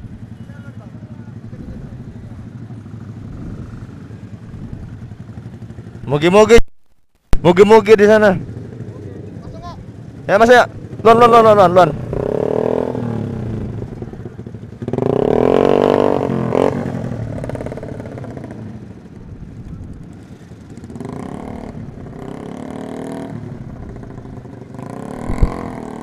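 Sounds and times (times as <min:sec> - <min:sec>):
motorcycle engines revving: 0:00.0 - 0:06.6, 0:07.4 - 0:26.0
short thump: 0:25.2 - 0:25.6.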